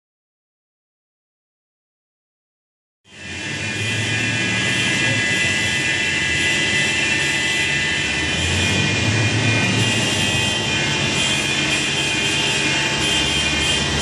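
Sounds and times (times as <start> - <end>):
loader engine whine and rumble: 3.2 - 14.0.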